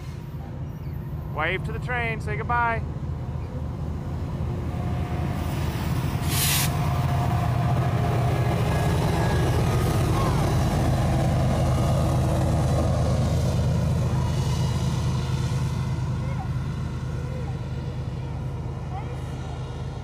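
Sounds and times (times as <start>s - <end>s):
diesel locomotive drone: 0.0s - 20.0s
train cars rolling over rails: 0.0s - 20.0s
short hiss: 6.2s - 6.8s.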